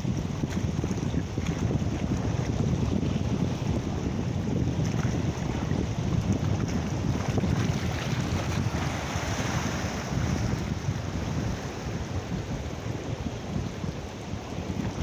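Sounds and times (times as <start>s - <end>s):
wind buffeting microphone: 0.0s - 15.0s
waves breaking on rocks: 4.8s - 12.7s.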